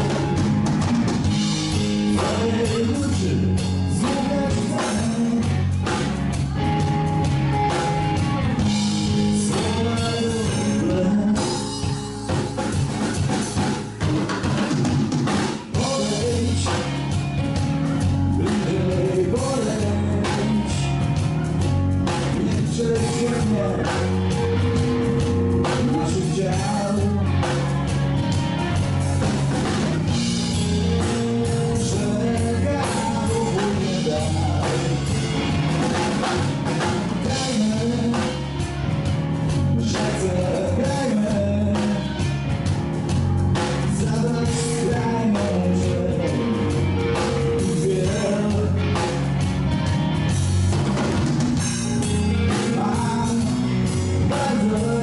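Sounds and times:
bass guitar: 0:00.0 - 0:55.0
drum kit: 0:00.0 - 0:55.0
electric guitar: 0:00.0 - 0:55.0
man singing: 0:01.7 - 0:06.8, 0:08.6 - 0:12.2, 0:15.6 - 0:17.3, 0:17.9 - 0:27.8, 0:30.5 - 0:35.8, 0:36.8 - 0:38.7, 0:39.5 - 0:42.4, 0:43.6 - 0:49.3, 0:52.4 - 0:55.0.

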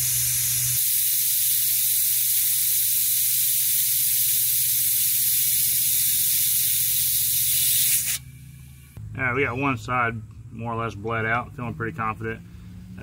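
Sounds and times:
air-powered vacuum bleeder hissing: 0:00.0 - 0:09.0.

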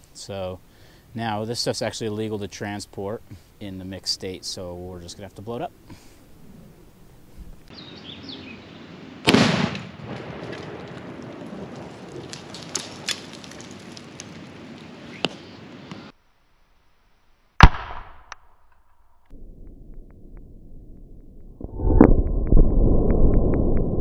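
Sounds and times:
explosive blast: 0:09.2 - 0:10.8, 0:17.6 - 0:18.2
rolling rumble with cracks: 0:09.3 - 0:16.0.

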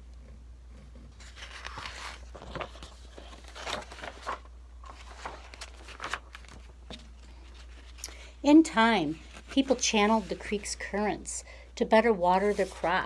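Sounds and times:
book pages rustling: 0:01.1 - 0:10.8, 0:12.3 - 0:13.0.

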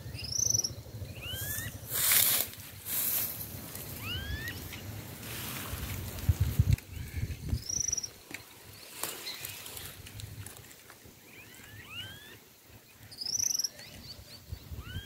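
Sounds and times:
bird whistled call: 0:00.1 - 0:01.8, 0:04.0 - 0:04.6, 0:11.3 - 0:12.4.

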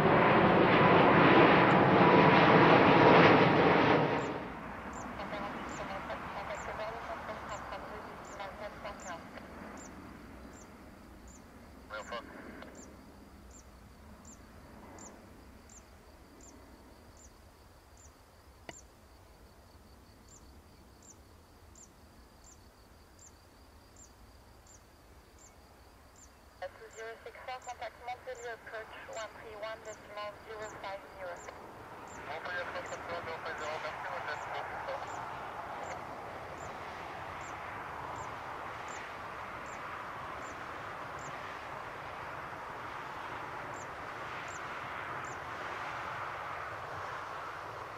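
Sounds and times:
distant jet engines rushing: 0:00.0 - 0:47.9
cricket chirping: 0:04.2 - 0:47.9
bird chirping: 0:13.5 - 0:16.6.

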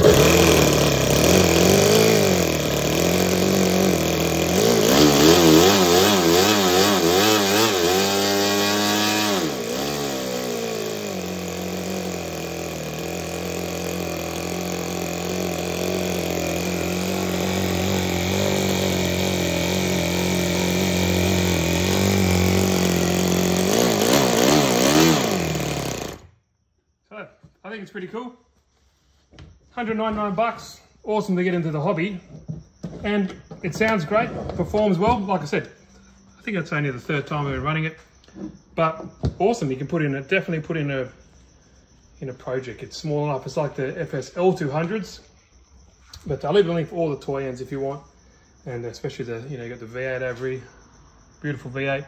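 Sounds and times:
model engine running: 0:00.0 - 0:26.3.

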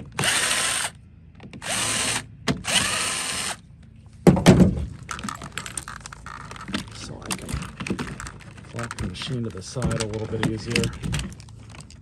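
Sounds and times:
cordless drill spinning: 0:00.0 - 0:01.0, 0:01.6 - 0:03.6
loud clunk: 0:04.2 - 0:05.0
light clicks and rattles: 0:05.0 - 0:12.0.

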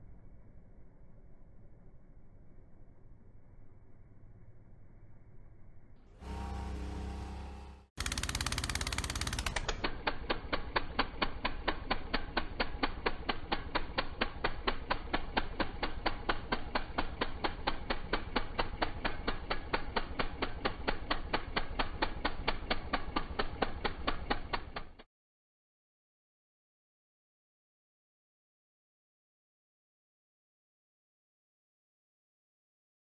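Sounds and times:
snowblower clattering: 0:06.2 - 0:25.0.

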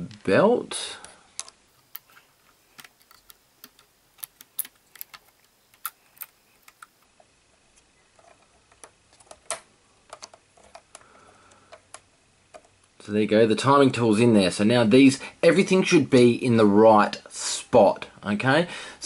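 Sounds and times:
plastic parts clicking: 0:01.4 - 0:07.3, 0:08.1 - 0:12.9.

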